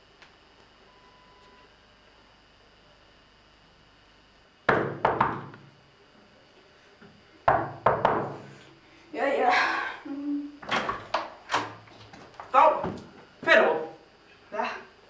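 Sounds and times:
knocking on a wooden door: 0:04.7 - 0:05.5, 0:07.5 - 0:08.3.

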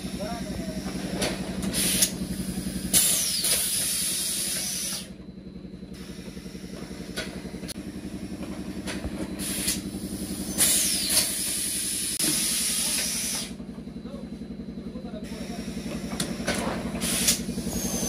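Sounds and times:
machinery low pulsing: 0:00.0 - 0:18.0
compressed-air hiss: 0:01.7 - 0:02.1, 0:02.8 - 0:05.1, 0:09.4 - 0:13.6, 0:17.0 - 0:18.0.

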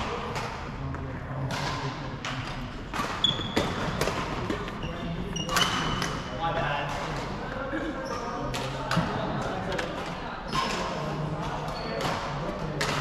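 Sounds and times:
racquets smacking shuttlecocks: 0:01.4 - 0:04.8, 0:11.6 - 0:13.0
shoes squeaking on wooden floor: 0:03.2 - 0:06.1.

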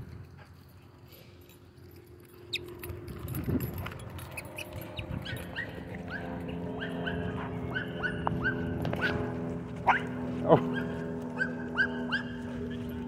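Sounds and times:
dogs whining: 0:04.2 - 0:09.3, 0:09.9 - 0:13.0.

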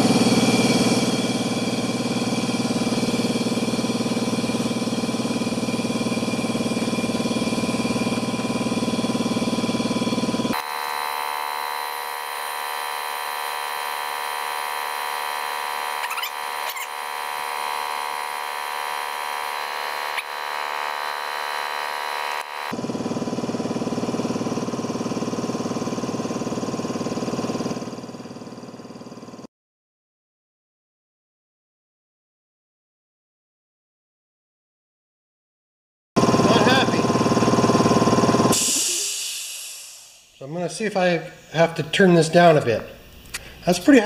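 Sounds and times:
air compressor running: 0:00.0 - 0:29.5, 0:36.2 - 0:41.8.

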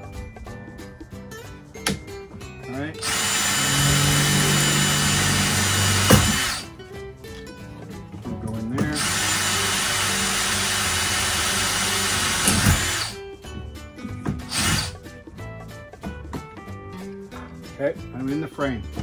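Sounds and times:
cordless drill boring: 0:03.0 - 0:06.7, 0:08.8 - 0:13.2, 0:14.4 - 0:15.0.

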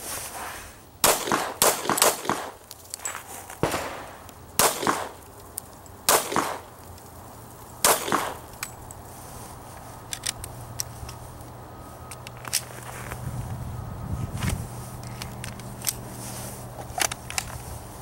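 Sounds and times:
pistol shots with echo: 0:01.0 - 0:02.6, 0:03.6 - 0:05.2, 0:06.1 - 0:06.6, 0:07.8 - 0:08.4.

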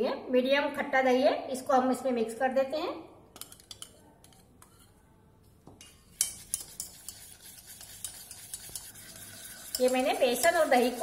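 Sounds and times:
utensil clinking in steel pot: 0:03.4 - 0:04.7, 0:05.8 - 0:11.0
thick batter scraping and swishing: 0:06.1 - 0:11.0.

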